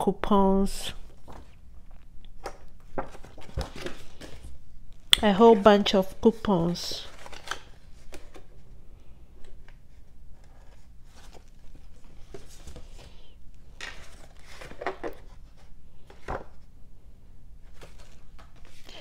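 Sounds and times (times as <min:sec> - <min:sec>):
paper rustling and crinkling: 0:01.0 - 0:04.6, 0:05.4 - 0:08.6, 0:09.4 - 0:13.2, 0:13.8 - 0:16.6, 0:17.6 - 0:19.0.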